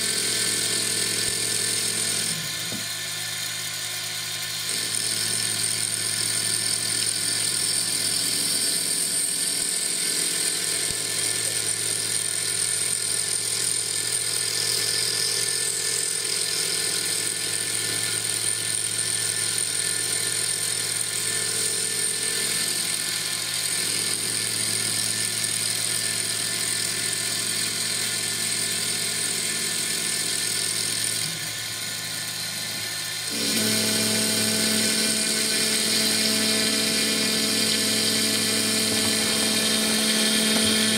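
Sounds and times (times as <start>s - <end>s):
mill spindle whining: 30.8s - 40.9s.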